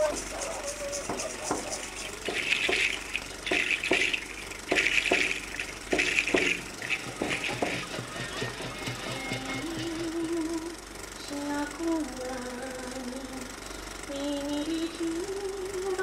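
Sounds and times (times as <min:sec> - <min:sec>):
seed shell rattle shaken: 0:00.0 - 0:08.2
sharp knocks: 0:01.1 - 0:09.8.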